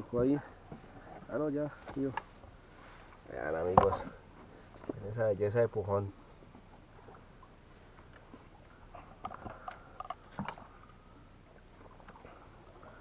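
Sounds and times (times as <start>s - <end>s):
knocks and clicks in wooden canoe: 0.6s - 2.4s, 3.6s - 5.0s, 7.9s - 10.8s
thump in wooden canoe: 3.7s - 4.2s.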